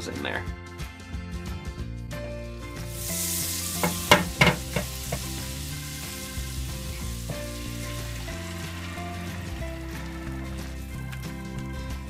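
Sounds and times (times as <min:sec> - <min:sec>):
butter sizzling in frying pan: 0:02.7 - 0:12.0
eggs poured into hot butter: 0:02.9 - 0:12.0
sharp knocks: 0:03.9 - 0:04.9.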